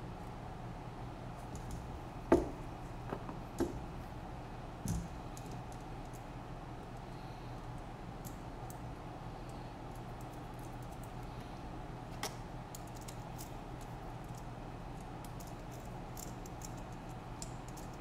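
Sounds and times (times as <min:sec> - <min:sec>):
steady low hum: 0:00.0 - 0:18.0
small parts clicking and tapping: 0:09.5 - 0:18.0.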